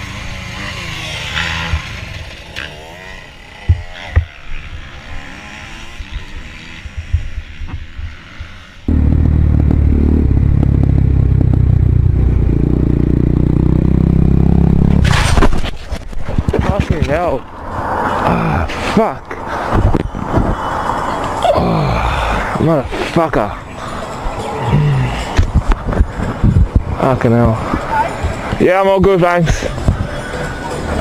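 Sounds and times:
motorcycle engine running loud: 0:00.0 - 0:15.0
motorcycle engine: 0:00.0 - 0:16.5.

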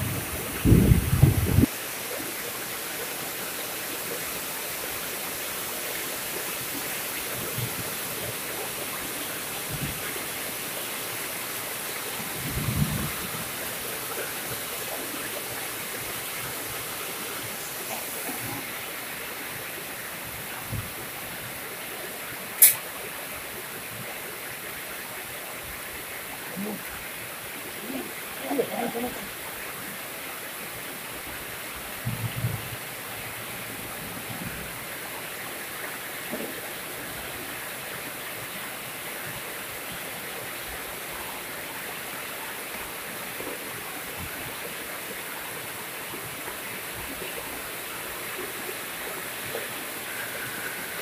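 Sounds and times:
heavy rain on water: 0:00.0 - 0:51.0
sharp click: 0:22.6 - 0:22.8.

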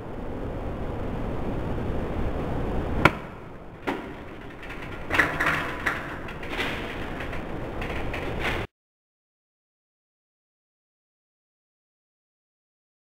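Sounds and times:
hands striking metal rails: 0:03.0 - 0:08.7.

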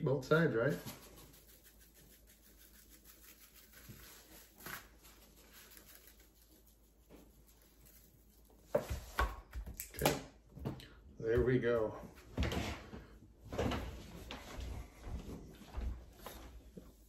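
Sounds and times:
seasoning shaker shaking: 0:00.6 - 0:08.7
seasoning pattering onto steak: 0:00.8 - 0:04.8.

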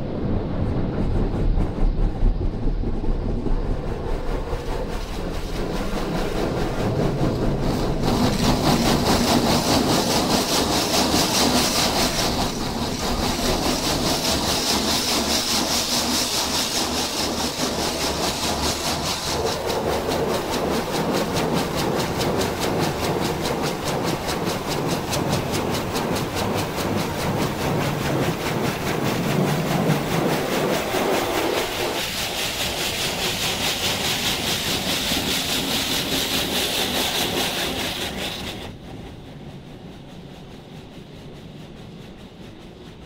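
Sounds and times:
muffled water jets spraying: 0:04.5 - 0:38.8.

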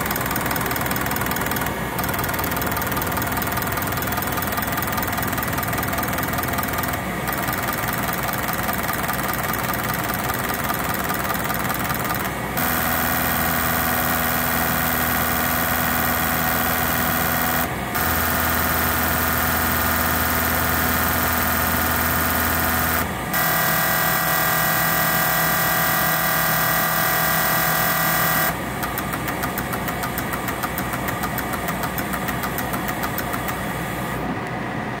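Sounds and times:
rapid even ticking: 0:00.0 - 0:23.0, 0:28.8 - 0:33.7
fuel injectors buzzing: 0:00.0 - 0:34.3.

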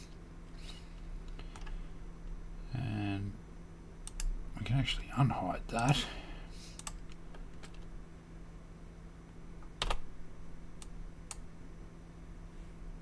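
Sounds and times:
low electrical hum: 0:00.0 - 0:13.0
keyboard and mouse clicks: 0:04.0 - 0:04.3, 0:06.8 - 0:07.8.

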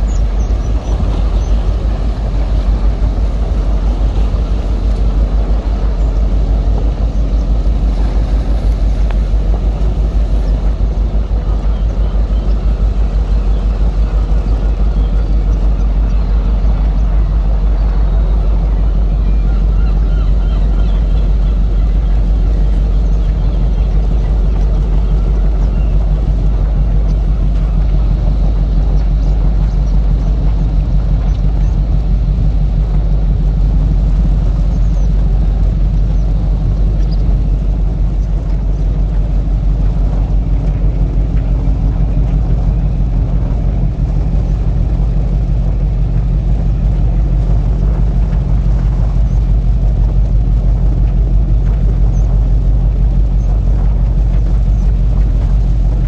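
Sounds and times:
low engine rumble: 0:00.0 - 0:56.0.

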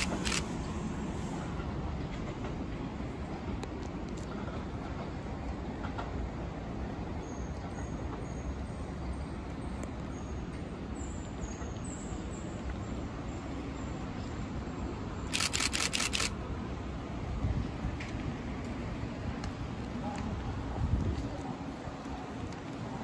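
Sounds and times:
camera shutter clicks: 0:00.0 - 0:00.6, 0:15.3 - 0:16.3.

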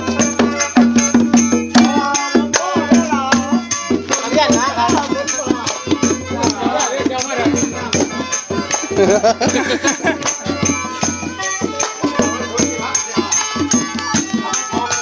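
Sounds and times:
percussive strikes: 0:00.0 - 0:15.0
voices singing and calling: 0:00.0 - 0:15.0
handclaps: 0:03.3 - 0:15.0.

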